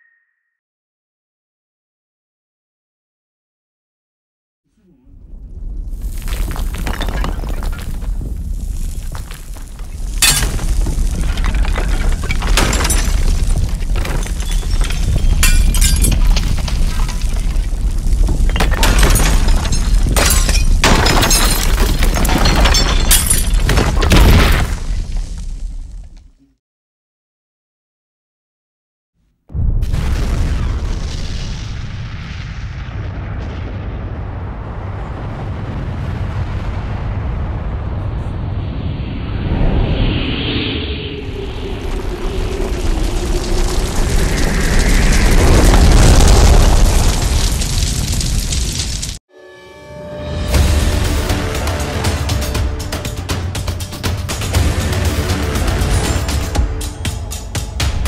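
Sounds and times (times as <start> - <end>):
bomb explosion: 4.8 - 26.0, 29.5 - 49.2
deep rumble: 4.8 - 26.2, 29.6 - 49.2
debris crashing and shattering: 5.4 - 26.2, 41.8 - 49.2, 50.6 - 58.0.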